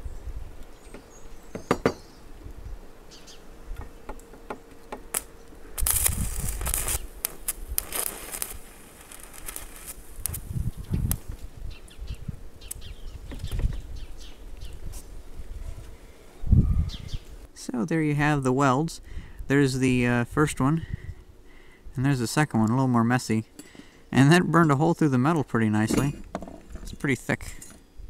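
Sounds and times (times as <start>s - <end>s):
welding rod snaps: 5.0s - 11.2s
welding arc crackling: 5.0s - 11.3s.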